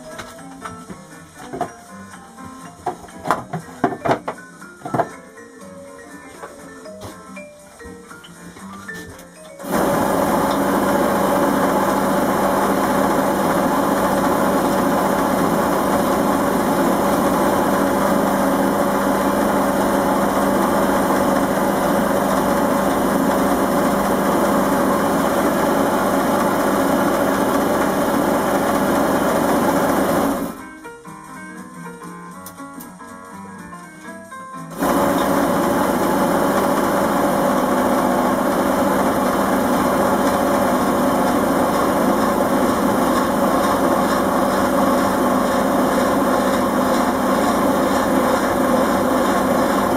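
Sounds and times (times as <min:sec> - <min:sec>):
quiet background music: 0:00.0 - 0:09.6, 0:30.5 - 0:34.8
wood lathe motor hum: 0:09.6 - 0:30.6, 0:34.8 - 0:49.9.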